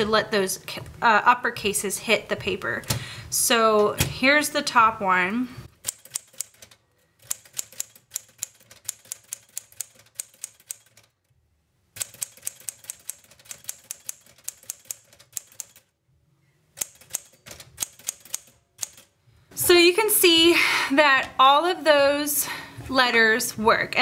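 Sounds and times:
manual typewriter typing: 5.8 - 11.3, 12.0 - 15.9, 16.8 - 19.1.

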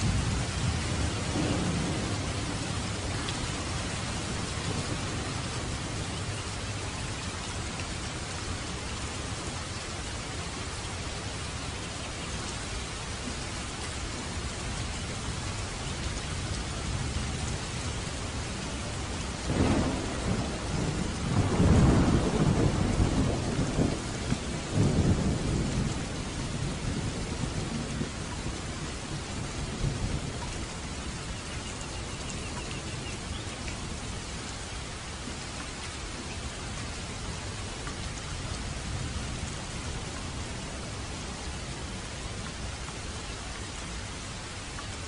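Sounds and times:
thunder rumbling: 0.0 - 6.6, 16.9 - 31.0
heavy rain on road: 0.0 - 45.0.

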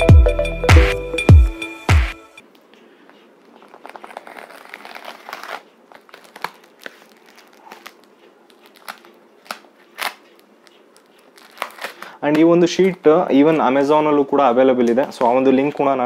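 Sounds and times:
plastic wrapping crinkling: 3.4 - 16.0.

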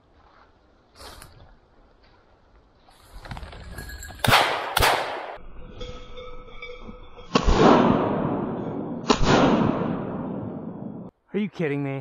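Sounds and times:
shotgun shots: 4.2 - 5.4, 7.3 - 11.1.

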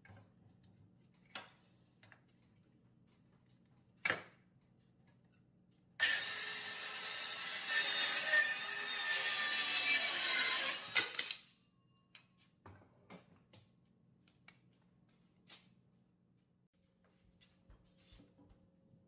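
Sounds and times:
circular saw cutting wood: 6.0 - 11.2
saw being set down: 10.8 - 11.4.

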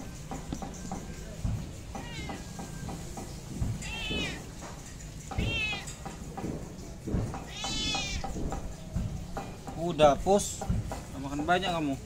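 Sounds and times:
cat meowing: 2.0 - 2.5, 3.8 - 4.5, 5.4 - 5.9, 7.4 - 8.3.

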